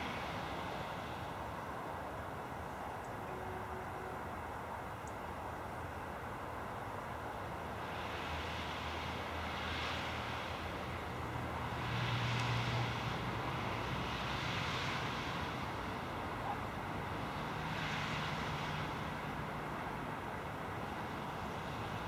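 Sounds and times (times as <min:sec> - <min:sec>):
vehicles passing: 0:00.0 - 0:22.0.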